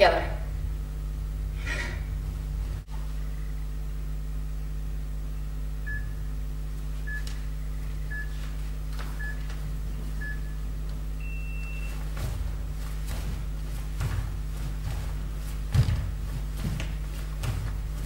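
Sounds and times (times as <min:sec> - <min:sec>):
steady low hum: 0:00.0 - 0:18.0
long high beep: 0:11.2 - 0:12.0
short timer beeps: 0:11.2 - 0:12.0.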